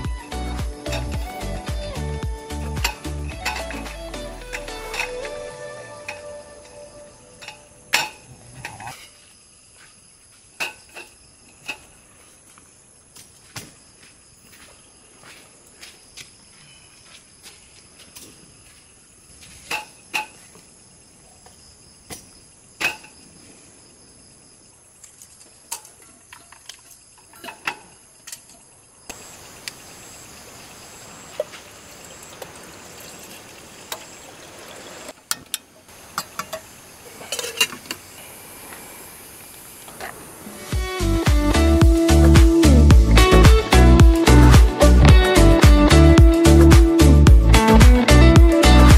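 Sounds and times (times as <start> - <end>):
crickets trilling: 0.2 - 42.8
even hiss: 35.8 - 48.9.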